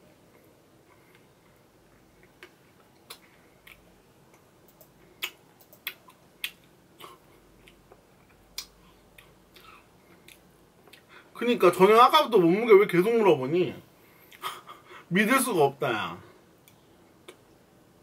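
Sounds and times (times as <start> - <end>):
quiet eating sounds: 0.2 - 11.3.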